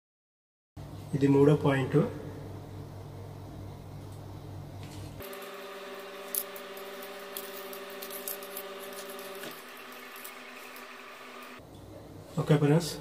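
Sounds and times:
steady hum: 2.3s - 12.3s.

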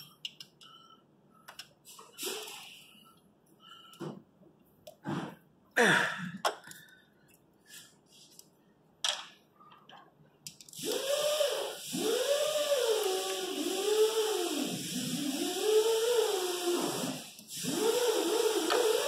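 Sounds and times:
hiss: 10.8s - 19.0s.

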